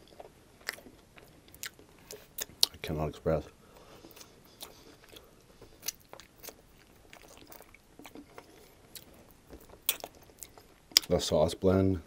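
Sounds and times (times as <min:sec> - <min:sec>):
biting and chewing: 0:00.0 - 0:02.8, 0:03.8 - 0:11.2
crispy crunches: 0:04.1 - 0:11.2.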